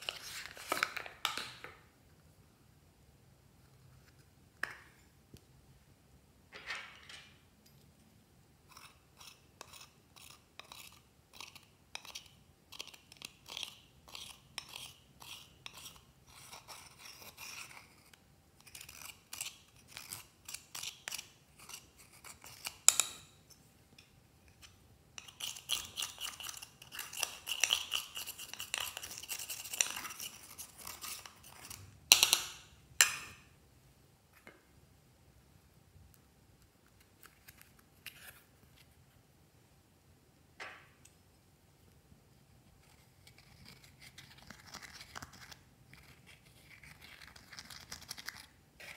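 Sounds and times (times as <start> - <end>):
metal spatula scraping eyeshadow: 8.7 - 23.3, 24.4 - 31.8.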